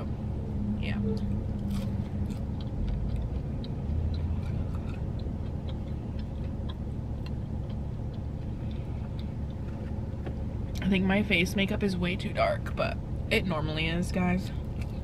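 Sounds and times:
car interior hum: 0:00.0 - 0:15.0
chewing food: 0:01.6 - 0:10.8.

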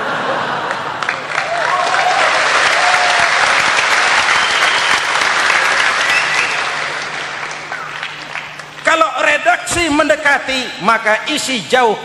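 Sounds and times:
audience clapping: 0:00.5 - 0:09.1
voices rising over applause: 0:00.6 - 0:09.1.

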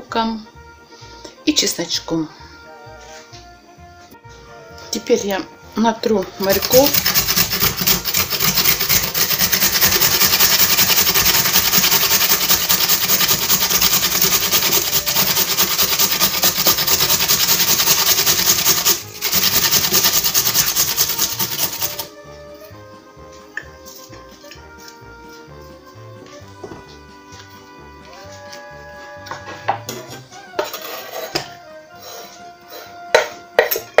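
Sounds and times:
soft background music: 0:00.0 - 0:34.0
carrot rasping on grater: 0:06.4 - 0:22.1.

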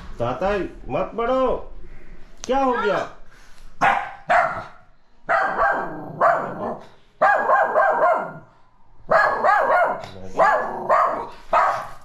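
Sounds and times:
dog barking: 0:03.8 - 0:08.5, 0:09.1 - 0:12.0.

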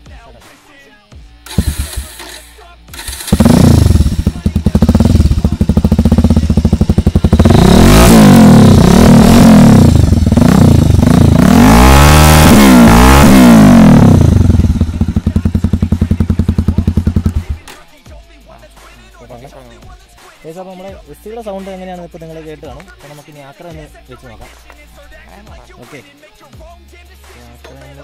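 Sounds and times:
motorcycle engine idling and revving: 0:01.4 - 0:17.8.

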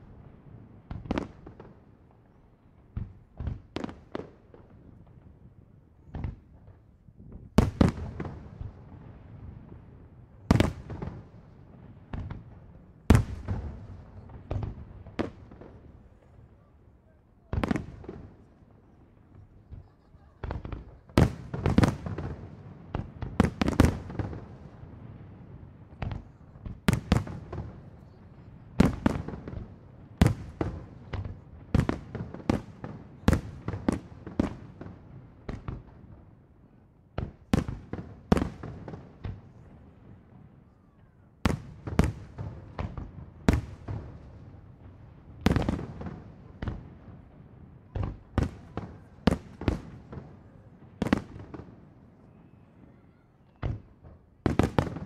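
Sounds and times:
fireworks bursting: 0:17.5 - 0:36.1, 0:41.4 - 0:52.9, 0:53.5 - 0:55.0.

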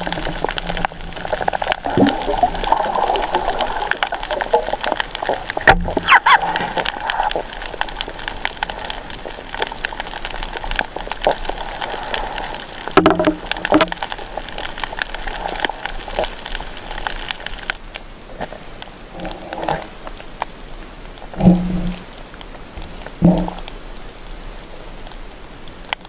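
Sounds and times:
underwater crackle of clicks: 0:00.0 - 0:23.8, 0:25.0 - 0:26.0
water sloshing: 0:21.3 - 0:23.8.

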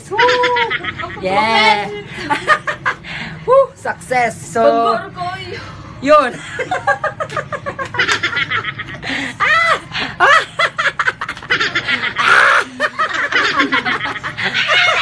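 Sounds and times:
young people laughing: 0:00.0 - 0:03.2, 0:06.3 - 0:15.0.

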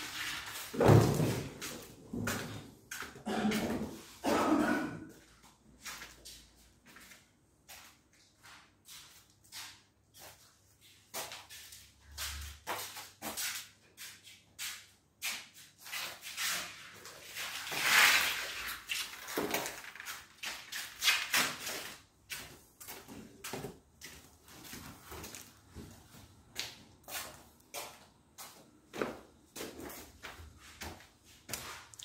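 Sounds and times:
loud scrape: 0:17.5 - 0:18.9
footsteps on hard floor: 0:21.7 - 0:31.8.

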